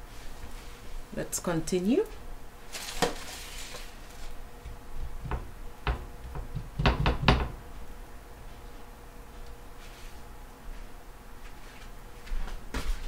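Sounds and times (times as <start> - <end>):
dough knocking on wooden board: 5.1 - 7.6.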